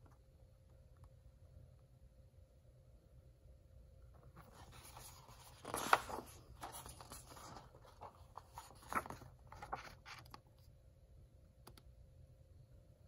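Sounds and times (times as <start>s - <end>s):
book pages rustling: 4.2s - 10.4s
paper crinkles: 4.4s - 10.4s.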